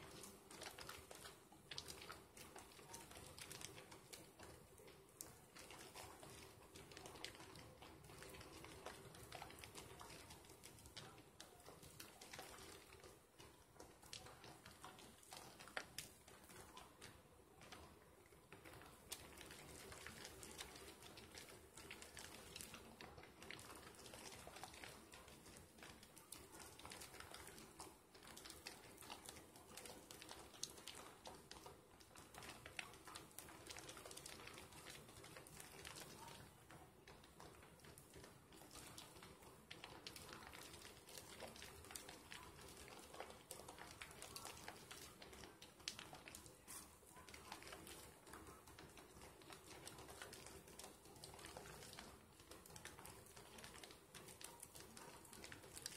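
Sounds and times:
soap lather squishing: 0:00.0 - 0:55.9.

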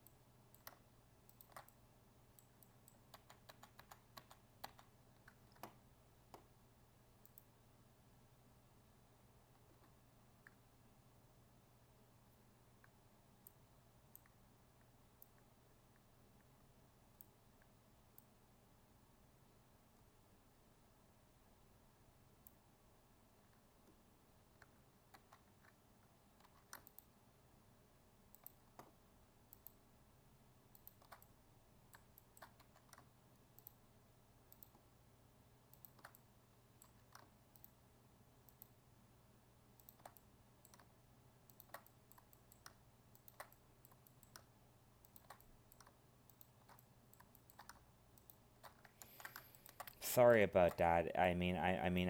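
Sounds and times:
mouse and keyboard clicks: 0:00.0 - 0:01.8, 0:02.4 - 0:06.5, 0:23.4 - 0:27.2, 0:28.3 - 0:29.8, 0:30.7 - 0:33.8, 0:34.5 - 0:34.8, 0:35.7 - 0:37.8, 0:38.5 - 0:38.8, 0:39.8 - 0:50.0
low steady hum: 0:00.0 - 0:52.0.

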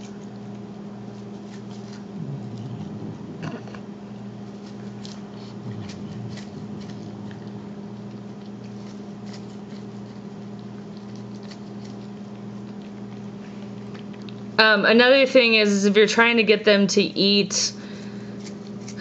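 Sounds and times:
cat chewing and smacking: 0:00.0 - 0:14.5
steady low hum: 0:00.0 - 0:19.0.

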